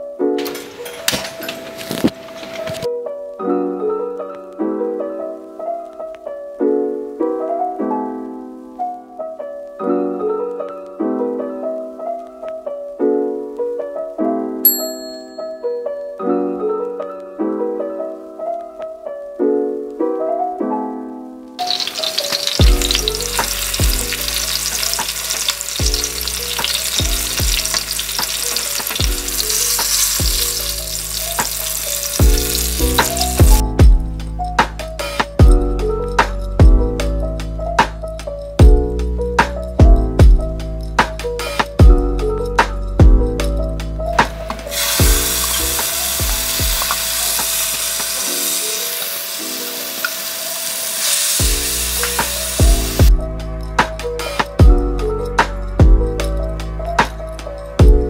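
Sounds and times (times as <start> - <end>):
spatula stirring: 21.6 - 33.5
garlic sizzling in oil: 21.6 - 33.6, 44.2 - 53.1
music with deep drum beat: 22.6 - 48.2, 51.4 - 58.0.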